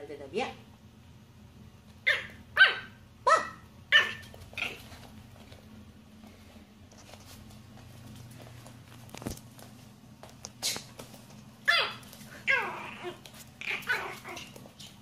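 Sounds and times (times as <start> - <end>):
puppy yapping: 2.0 - 5.0, 11.6 - 14.9.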